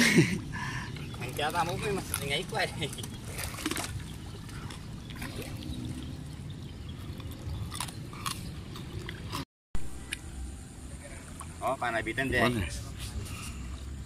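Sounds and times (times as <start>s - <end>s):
water sloshing against boat hull: 0.9s - 9.4s.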